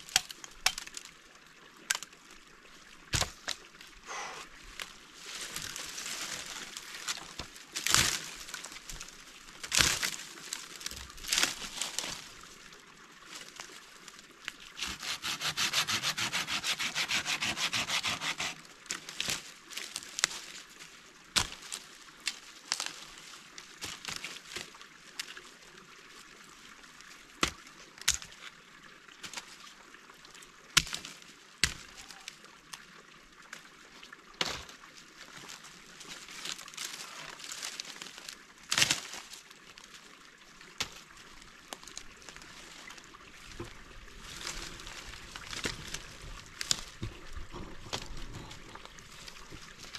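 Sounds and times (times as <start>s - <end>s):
dry wood cracking: 0.0s - 1.1s, 1.8s - 2.2s, 4.8s - 12.3s, 14.4s - 20.5s, 21.4s - 23.1s, 36.1s - 39.3s, 43.5s - 49.9s
hand saw cutting a branch: 14.8s - 18.7s.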